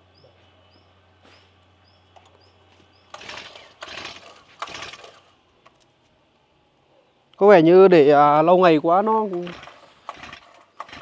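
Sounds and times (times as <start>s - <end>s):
recoil starter cord pulls: 3.1s - 5.8s, 9.1s - 11.0s.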